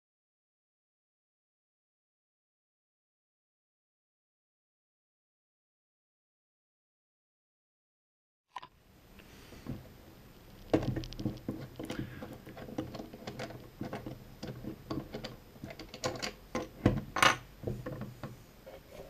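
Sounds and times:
plastic clicks and knocks: 10.6 - 18.4.

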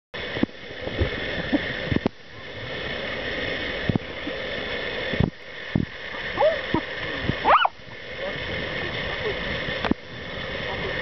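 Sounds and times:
wind noise on microphone: 0.4 - 2.7, 5.1 - 11.0.

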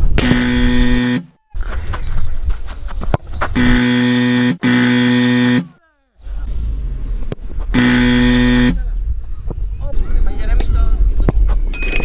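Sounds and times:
game show buzzer: 0.2 - 1.3, 3.6 - 5.7, 7.8 - 8.8.

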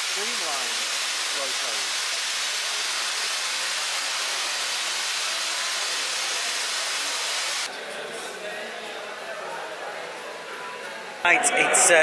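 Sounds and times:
steam locomotive venting steam: 0.0 - 7.7.

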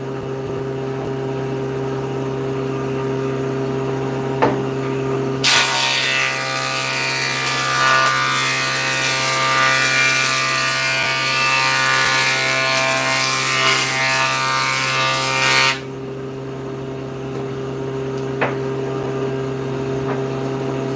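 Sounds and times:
table saw cutting wood: 5.4 - 15.9
saw motor hum: 5.4 - 16.0.

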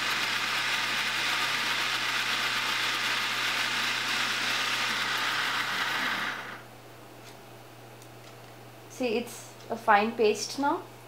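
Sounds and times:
blender motor grinding: 0.0 - 6.6.

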